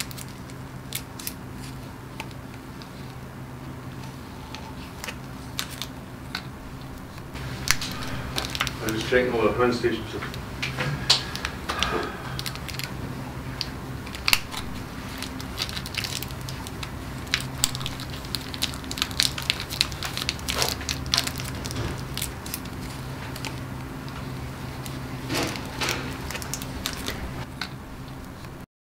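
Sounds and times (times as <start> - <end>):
wrapper crinkling and crackling: 0.0 - 3.3, 3.9 - 10.4, 11.1 - 28.6
low hum: 0.0 - 28.6.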